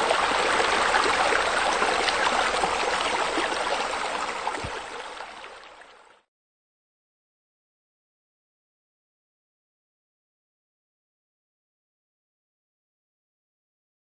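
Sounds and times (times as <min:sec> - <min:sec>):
running splashing water: 0:00.0 - 0:05.9.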